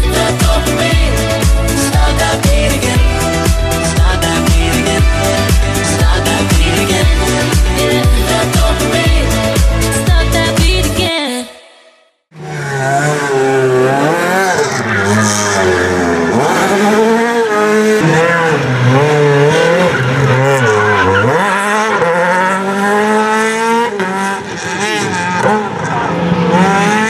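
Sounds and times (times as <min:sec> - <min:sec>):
rally car engine revving: 0:00.0 - 0:11.1, 0:12.3 - 0:27.0.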